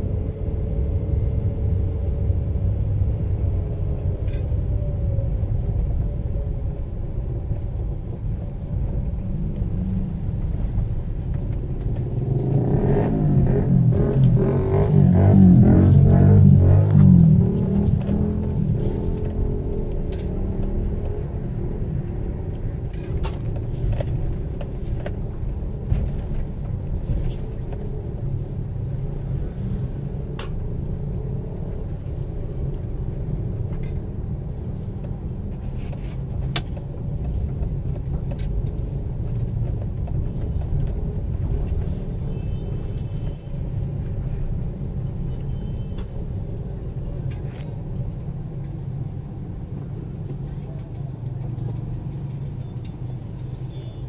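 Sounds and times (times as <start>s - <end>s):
car engine rumble: 0.0s - 45.4s, 46.0s - 54.0s
road noise inside car: 0.0s - 54.0s.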